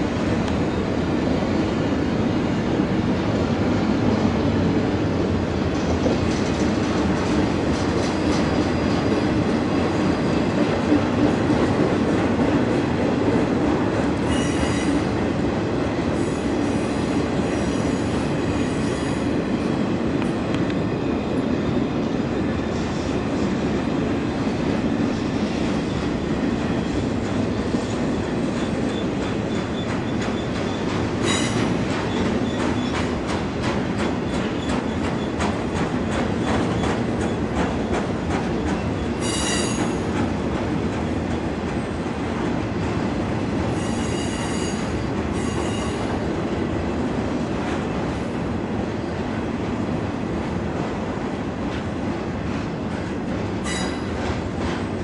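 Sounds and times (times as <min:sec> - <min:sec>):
freight train wheels rumbling: 0:00.0 - 0:55.0
high wheel squeals: 0:14.3 - 0:15.1, 0:39.2 - 0:40.0, 0:43.8 - 0:46.1.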